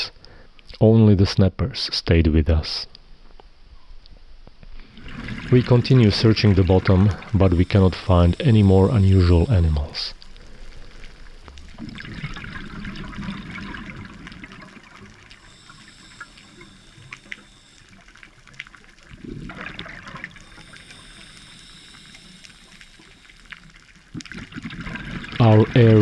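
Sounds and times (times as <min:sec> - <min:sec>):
scuba regulator exhaust bubbles: 0:04.8 - 0:26.0
faint clicks: 0:15.1 - 0:19.2.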